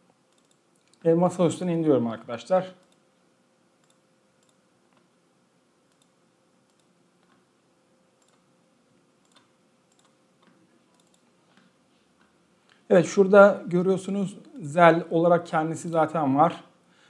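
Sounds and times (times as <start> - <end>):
faint steady hum: 0.0 - 17.0
computer mouse clicks: 0.3 - 1.0, 3.8 - 5.1, 5.9 - 7.5, 8.2 - 8.5, 9.2 - 12.4.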